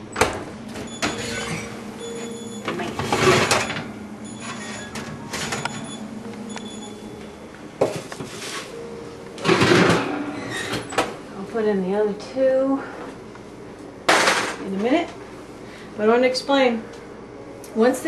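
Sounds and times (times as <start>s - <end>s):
steady low hum: 0.0s - 18.0s
oven rack scraping rattle: 0.7s - 6.0s, 9.4s - 11.1s.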